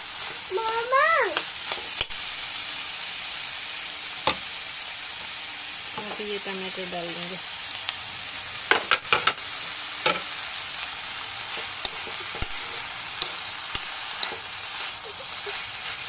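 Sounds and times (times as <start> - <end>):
vegetables sizzling: 0.0 - 16.0
spoon clacking against pan: 11.6 - 14.5.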